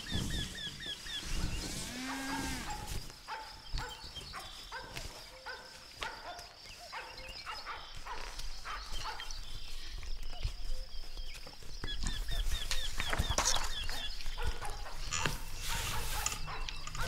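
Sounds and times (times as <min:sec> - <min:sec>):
farmyard animal calls: 0:00.0 - 0:17.0.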